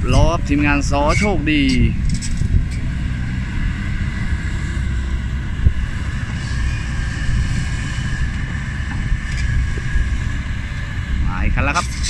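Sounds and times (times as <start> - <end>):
excavator diesel engine running: 0.0 - 12.0.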